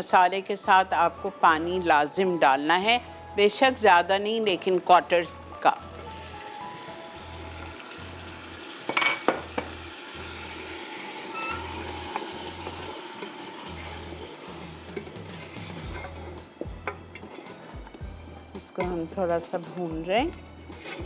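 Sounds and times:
masala sizzling: 0.0s - 21.0s
wooden spoon stirring in a pot: 11.7s - 21.0s.

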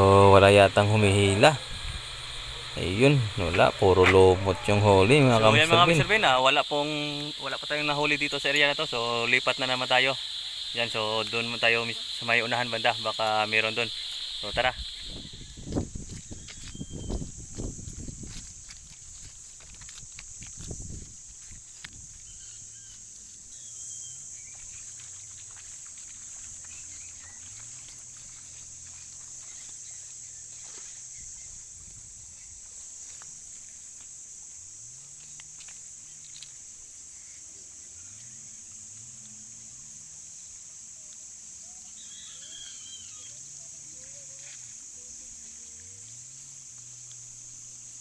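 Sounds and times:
faint low hum: 0.0s - 6.6s
high-pitched insect chorus: 0.0s - 48.0s.

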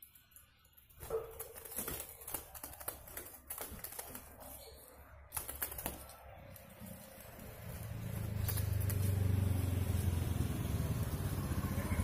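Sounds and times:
bird fluttering in a cage: 0.0s - 11.7s.

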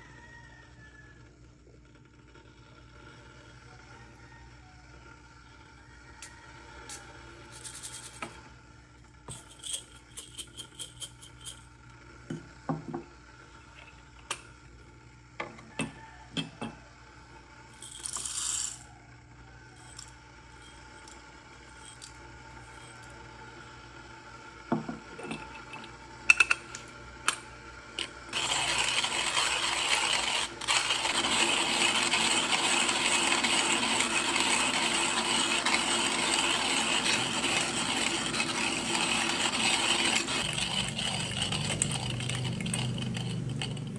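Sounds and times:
hand grinder crushing beans: 6.8s - 8.3s, 17.8s - 18.9s, 19.8s - 23.3s, 28.0s - 43.9s
coffee beans clicking and rattling: 6.9s - 8.3s, 9.3s - 11.7s, 17.8s - 18.8s, 19.8s - 23.2s, 28.0s - 43.9s.

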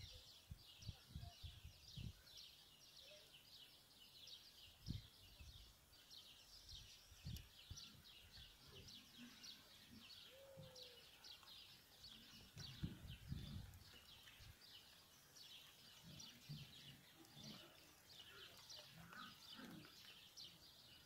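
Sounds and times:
small birds chirping: 0.0s - 21.0s
low rumbles on microphone: 12.6s - 14.1s.

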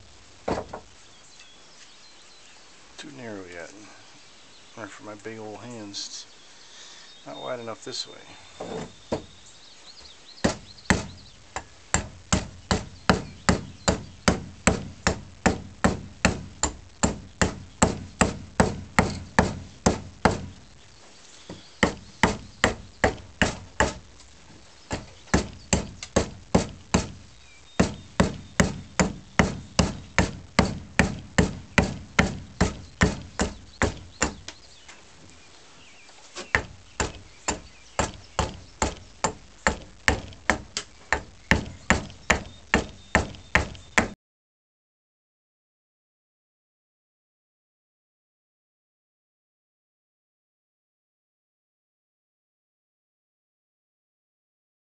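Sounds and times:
axe chopping wood: 10.4s - 20.5s, 21.8s - 24.1s, 24.9s - 27.2s, 27.8s - 34.5s, 36.5s - 44.2s.

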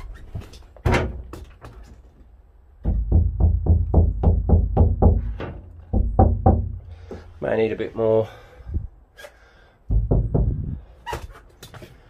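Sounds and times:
hand knocking on metal panel: 2.8s - 6.8s, 9.9s - 10.6s.

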